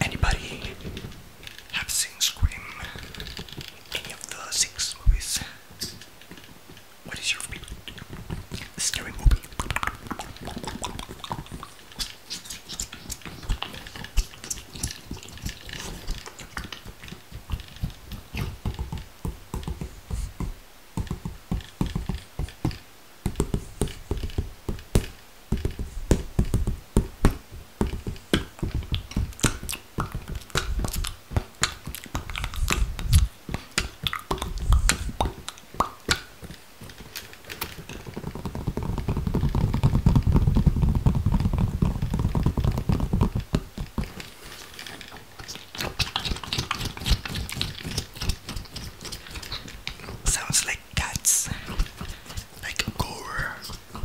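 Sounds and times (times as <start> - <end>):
mouth sounds: 1.7 - 6.0, 7.0 - 18.6, 45.4 - 54.0
clicks and taps at microphone: 5.1 - 54.0.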